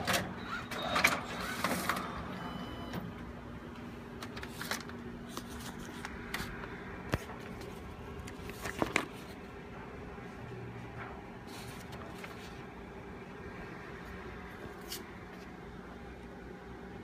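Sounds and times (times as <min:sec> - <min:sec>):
paper being handled: 0:04.3 - 0:09.5, 0:11.4 - 0:12.7.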